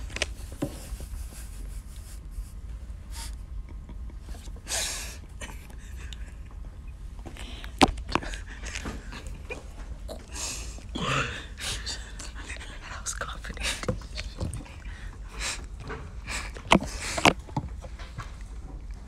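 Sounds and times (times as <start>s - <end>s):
stifled laughter snorts: 3.1s - 6.5s.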